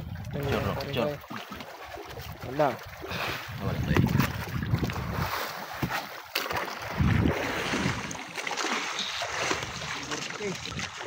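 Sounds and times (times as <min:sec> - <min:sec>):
wind buffeting microphone: 0:00.0 - 0:01.2, 0:02.1 - 0:06.0, 0:06.8 - 0:08.2
water washing against boat: 0:00.0 - 0:11.0.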